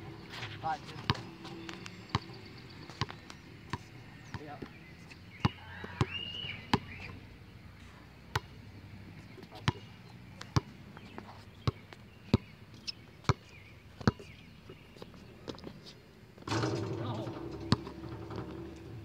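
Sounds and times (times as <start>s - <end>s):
basketball bouncing on court: 1.0s - 4.7s, 8.3s - 8.5s, 9.6s - 10.8s, 16.4s - 18.9s.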